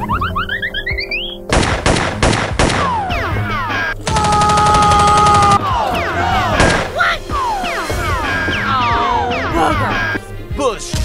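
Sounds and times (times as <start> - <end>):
gunshots: 1.5 - 8.6.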